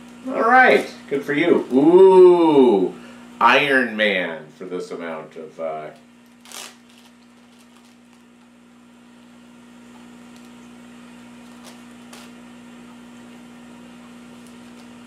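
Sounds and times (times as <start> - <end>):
low electrical hum: 0.0 - 15.0
plastic bag crinkling: 5.9 - 8.5, 11.3 - 12.4, 14.3 - 15.0.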